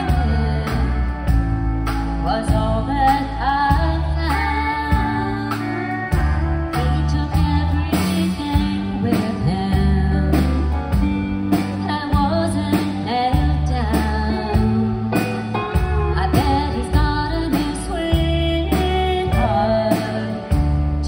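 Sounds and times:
drum beats: 0:00.0 - 0:04.1, 0:04.9 - 0:21.0
woman singing: 0:00.0 - 0:20.8
country band playing: 0:00.0 - 0:21.0.

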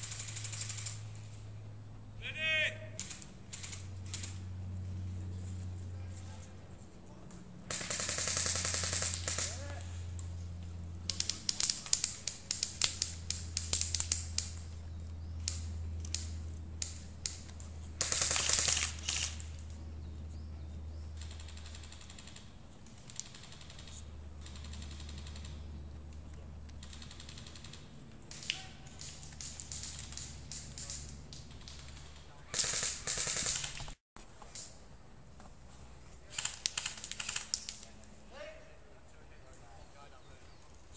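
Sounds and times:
airsoft rifle full-auto burst: 0:07.7 - 0:09.6, 0:18.0 - 0:19.4, 0:31.7 - 0:33.9, 0:36.3 - 0:37.6.

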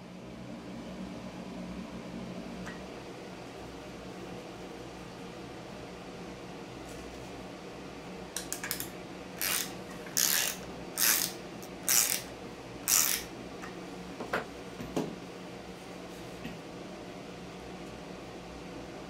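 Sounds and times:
ratcheting wrench clicking: 0:08.4 - 0:12.3, 0:12.9 - 0:13.3.

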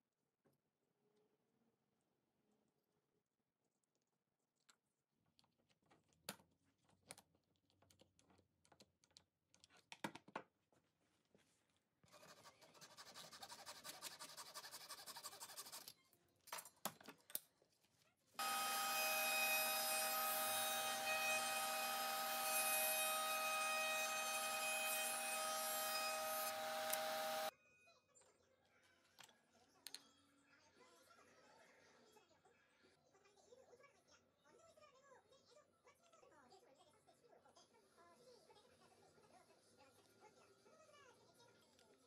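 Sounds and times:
hand saw sawing: 0:18.4 - 0:27.5
router running with whine: 0:18.4 - 0:27.5.

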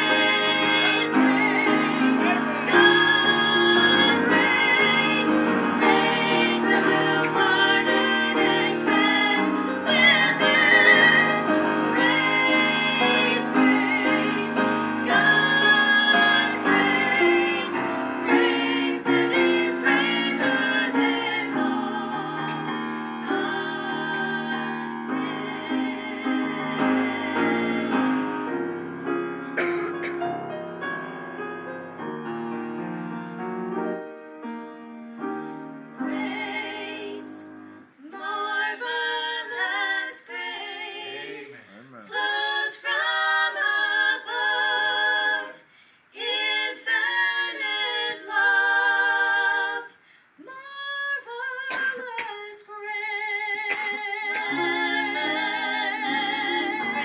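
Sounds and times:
women singing gospel: 0:00.0 - 0:28.6, 0:35.2 - 0:57.0
instrumental accompaniment: 0:00.0 - 0:37.8.

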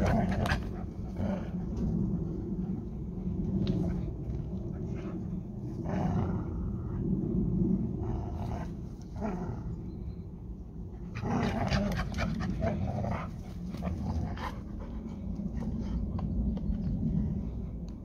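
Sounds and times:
dogs panting: 0:00.0 - 0:05.6, 0:11.1 - 0:17.4
dogs growling: 0:00.0 - 0:10.1, 0:11.0 - 0:17.7.

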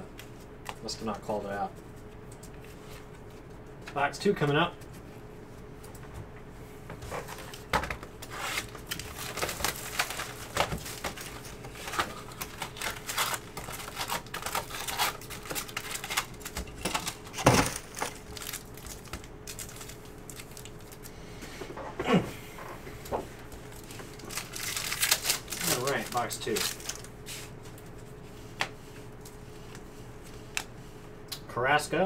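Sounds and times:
foil wrappers crinkling: 0:07.2 - 0:21.2, 0:23.4 - 0:28.2.

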